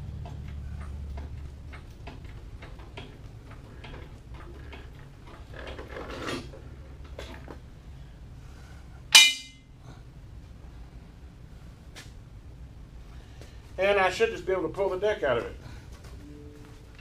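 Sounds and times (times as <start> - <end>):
loud ringing metal clang: 9.1 - 9.7.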